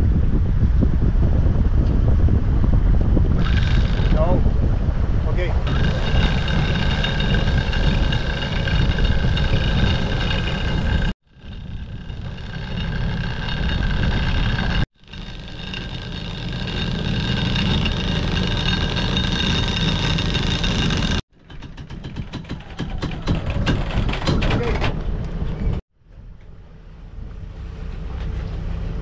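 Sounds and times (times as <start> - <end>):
boat engine running: 3.2 - 4.6, 5.4 - 21.2, 26.5 - 29.0.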